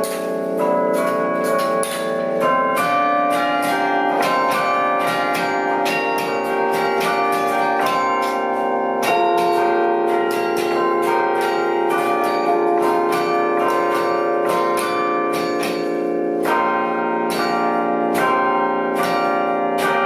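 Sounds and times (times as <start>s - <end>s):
bells ringing: 0.0s - 20.0s.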